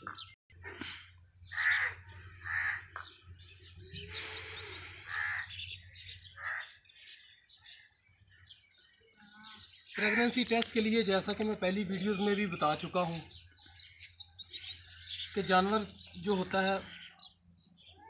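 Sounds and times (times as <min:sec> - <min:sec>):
small birds chirping: 0:00.0 - 0:18.0
crows cawing: 0:01.4 - 0:03.1, 0:04.6 - 0:07.1.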